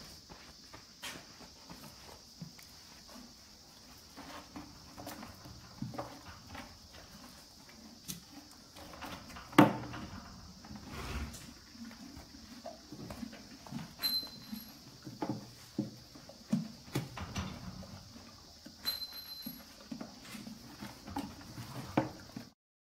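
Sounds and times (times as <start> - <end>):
horse chewing corn stalk: 1.8 - 9.2, 10.5 - 17.2, 19.6 - 22.5.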